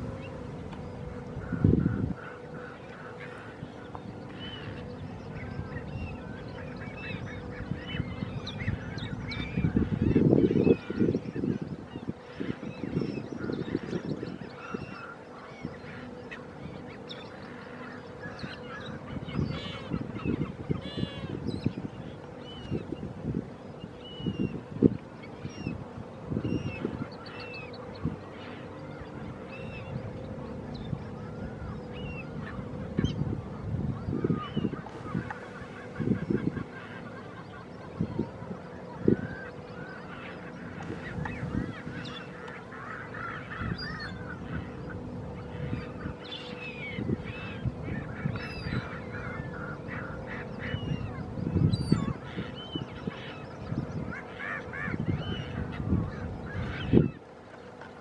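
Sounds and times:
gulls calling: 0.0 - 58.0.

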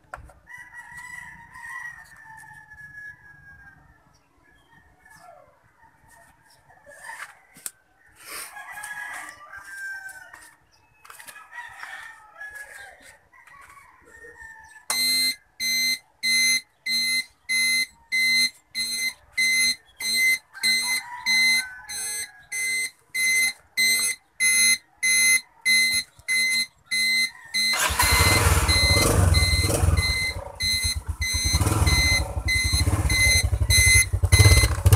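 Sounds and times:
high-pitched turn-signal beeps: 14.9 - 34.9.

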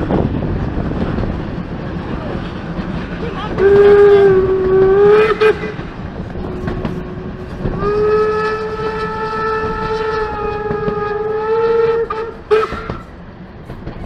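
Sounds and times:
steam locomotive whistle: 3.6 - 5.8, 6.9 - 13.2.

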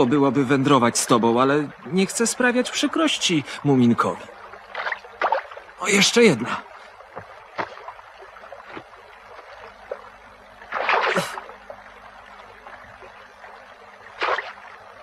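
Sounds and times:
water lapping at shore: 0.0 - 15.0
fish splashing out of water: 4.7 - 5.6, 10.6 - 11.5, 14.1 - 14.7.

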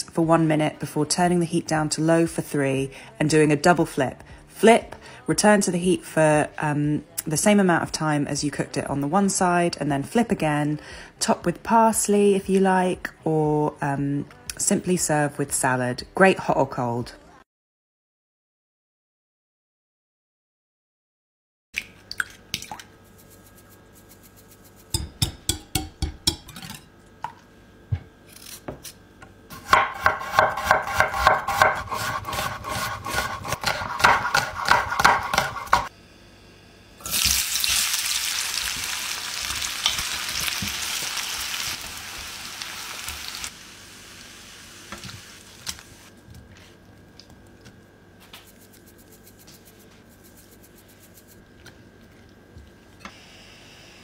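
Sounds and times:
spatula scraping and tapping: 23.2 - 26.8, 29.7 - 35.9, 48.2 - 51.8
onions sizzling in hot oil: 37.0 - 46.1.

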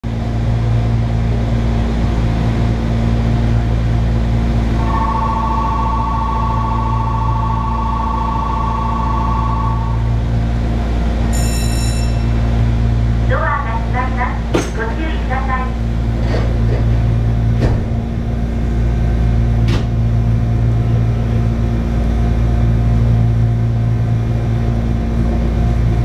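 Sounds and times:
electric train humming: 0.1 - 26.0
station departure bell ringing: 4.7 - 13.0
short high electronic tone: 4.8 - 10.1, 11.4 - 12.4.

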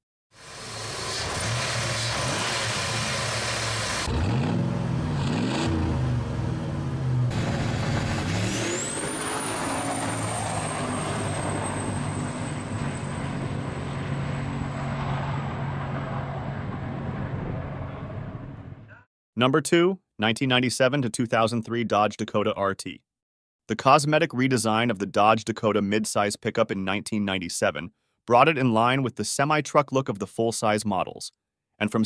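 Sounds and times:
truck engine revving: 0.4 - 18.9
engine drone with high whine: 0.4 - 19.0.

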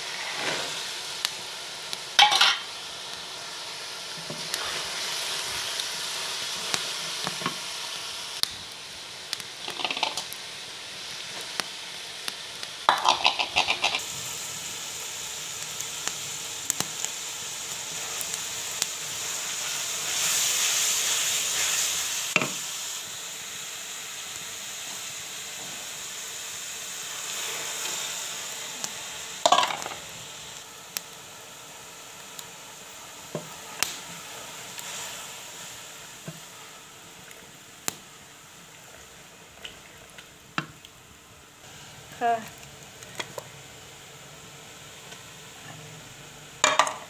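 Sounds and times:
vegetables sizzling in hot oil: 0.0 - 47.0
spatula scraping and knocking pan: 2.2 - 2.7, 12.9 - 14.0, 29.5 - 30.0.

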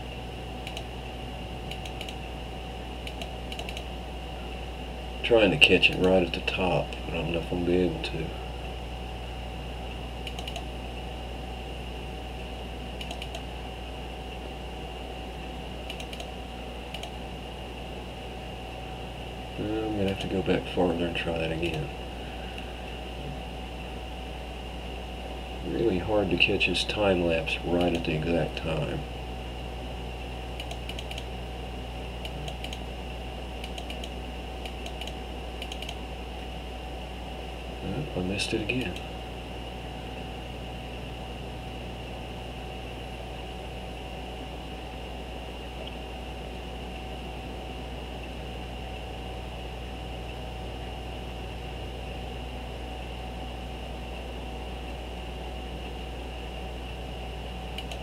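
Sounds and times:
electrical hum: 0.0 - 58.0
computer mouse clicks: 0.6 - 0.9, 1.7 - 2.2, 3.0 - 3.9, 10.2 - 10.7, 13.0 - 13.5, 15.8 - 16.3, 16.9 - 17.2, 20.0 - 20.3, 27.8 - 28.1, 30.6 - 31.3, 32.2 - 32.8, 33.6 - 36.0, 57.7 - 58.0.

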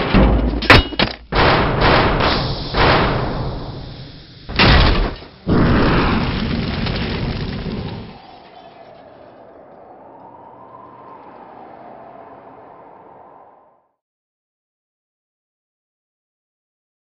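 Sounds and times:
heavy cinematic hits: 1.3 - 9.1.

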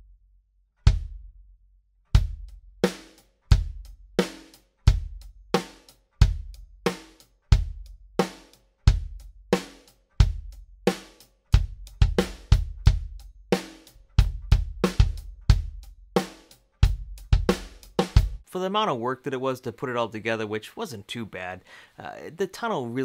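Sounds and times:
drum kit playing a beat: 0.8 - 1.3, 2.1 - 18.4.

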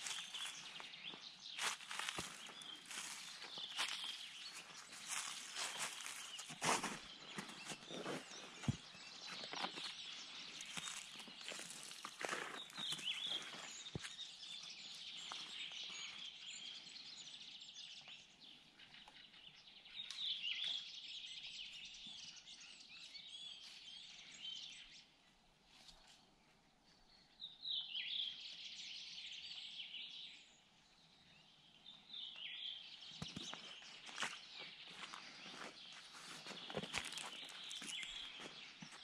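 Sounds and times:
songbirds singing: 0.0 - 39.0.

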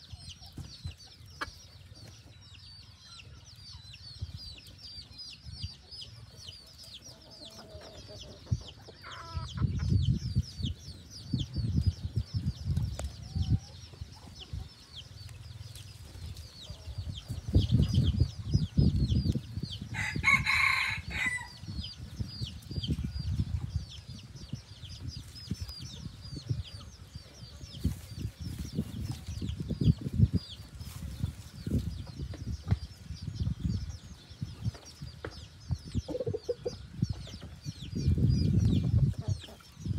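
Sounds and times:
rooster crowing: 20.0 - 21.6.

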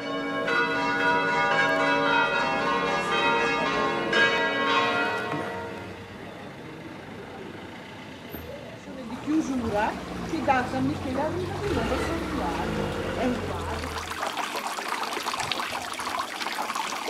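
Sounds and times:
church bells ringing: 0.0 - 6.4.

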